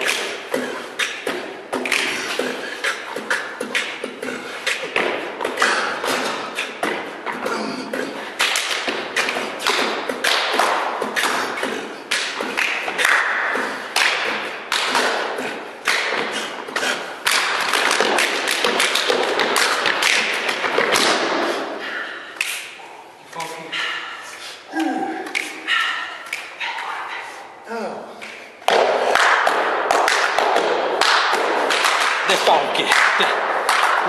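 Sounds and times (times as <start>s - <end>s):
foot stomps: 0.0s - 22.0s
hand slaps on body: 24.8s - 26.9s.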